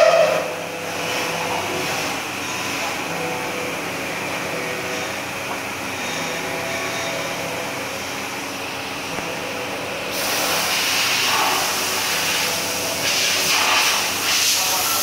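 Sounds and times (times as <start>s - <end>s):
machine mechanical hum: 0.0s - 15.0s
loud high hiss: 10.1s - 15.0s.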